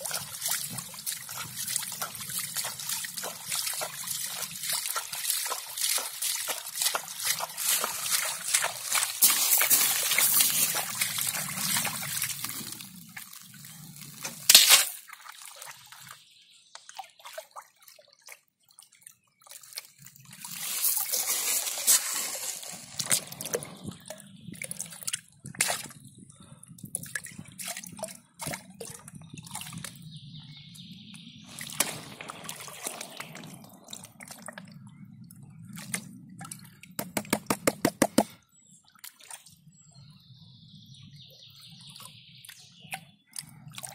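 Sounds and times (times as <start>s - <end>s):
sharp splash: 0.0s - 13.5s, 14.2s - 15.8s, 31.5s - 34.6s
water sloshing in a pan: 0.0s - 16.1s, 31.5s - 34.8s
rapid even taps: 37.0s - 38.3s.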